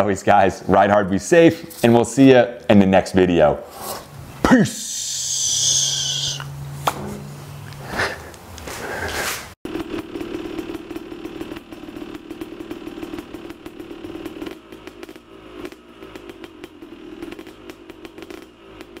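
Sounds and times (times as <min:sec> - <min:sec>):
bench buffer motor running: 0:09.6 - 0:19.0
wheel grinding on metal: 0:09.6 - 0:19.0.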